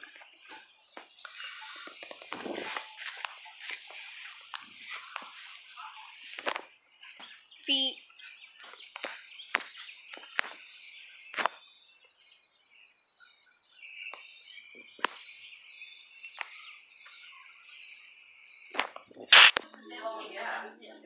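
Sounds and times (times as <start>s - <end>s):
birds chirping: 0.0s - 21.0s
insects trilling: 13.3s - 20.4s
short sharp clicks: 18.8s - 19.7s.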